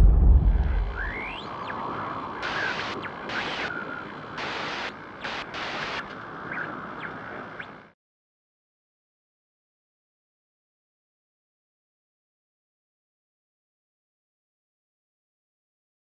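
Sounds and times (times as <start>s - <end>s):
deep boom: 0.0s - 1.4s
steady rushing noise: 0.0s - 7.6s.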